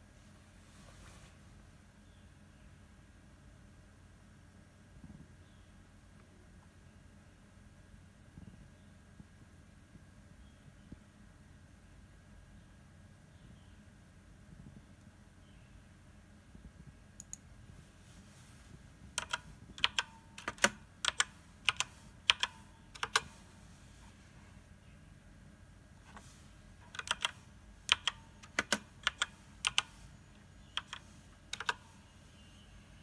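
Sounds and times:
faint low hum: 0.0s - 33.0s
tiny clicks: 17.2s - 17.4s, 30.8s - 31.8s
keyboard keys clacking: 19.1s - 23.4s, 26.8s - 32.0s.

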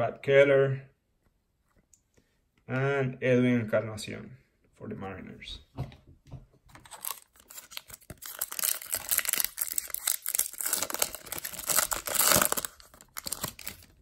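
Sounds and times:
foil wrapper tearing and crinkling: 6.8s - 14.0s.

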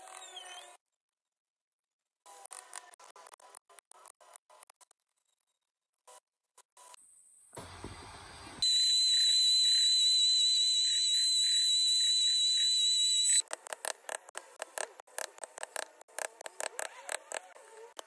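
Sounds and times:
small power tool whining: 7.6s - 13.4s.

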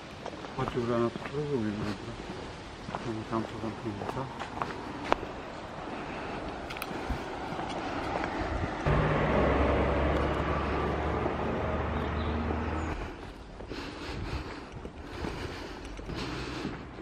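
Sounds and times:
car driving past: 7.3s - 13.2s.

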